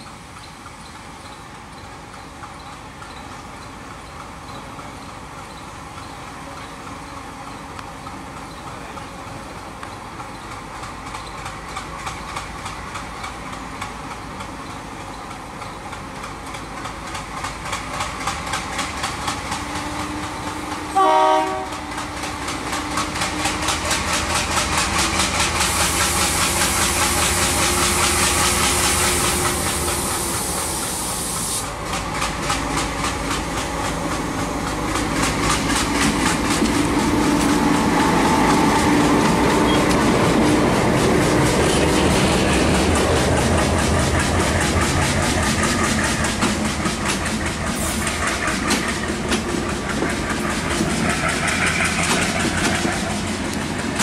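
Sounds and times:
diesel locomotive engine passing: 0:00.0 - 0:54.0
train horn blast: 0:20.9 - 0:21.9
high hiss: 0:25.4 - 0:31.8.

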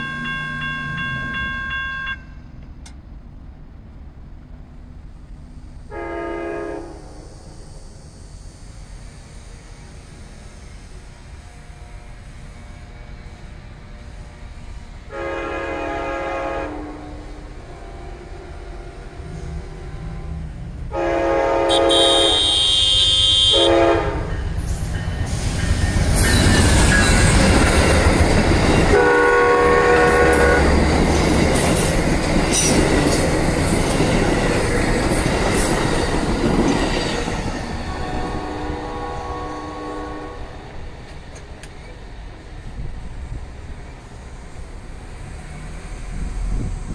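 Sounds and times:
train wheels rumbling: 0:02.4 - 0:46.9
train air horn: 0:05.9 - 0:07.3, 0:15.1 - 0:24.4, 0:28.9 - 0:30.8, 0:37.8 - 0:40.7.

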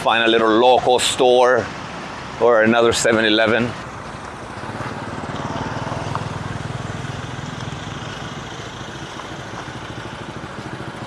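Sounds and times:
street noise: 0:00.0 - 0:11.0
vehicle engine running: 0:03.8 - 0:11.0.

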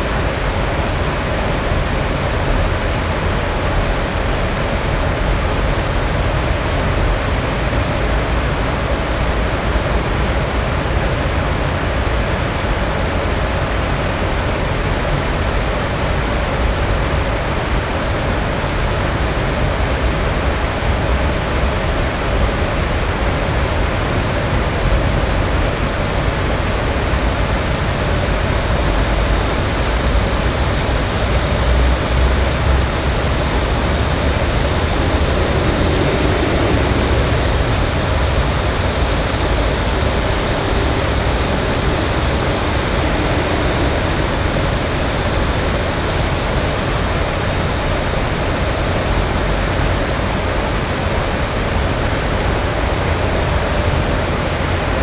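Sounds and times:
distant traffic rumble: 0:26.2 - 0:51.4
cicada buzzing: 0:26.4 - 0:51.2.

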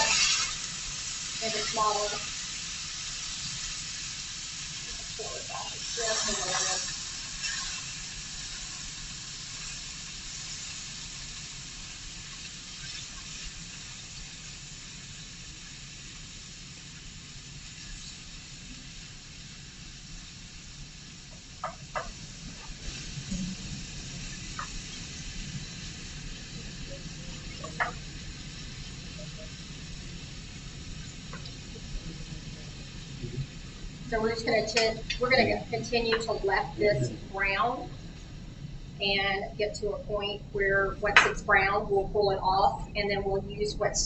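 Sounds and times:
meat sizzling in a skillet: 0:00.0 - 0:36.9.

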